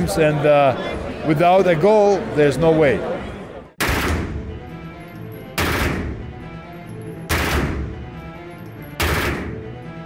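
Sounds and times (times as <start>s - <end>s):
background music: 0.0s - 10.0s
gunshot sound effects: 3.8s - 4.5s, 5.6s - 6.3s, 7.3s - 8.0s, 9.0s - 9.7s.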